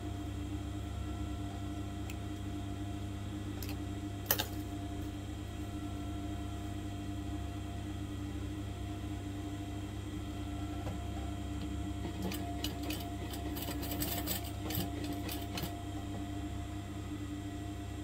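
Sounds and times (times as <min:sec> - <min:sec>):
sewing machine motor hum: 0:01.3 - 0:06.8, 0:10.1 - 0:16.2
sewing machine clicking: 0:12.1 - 0:15.7.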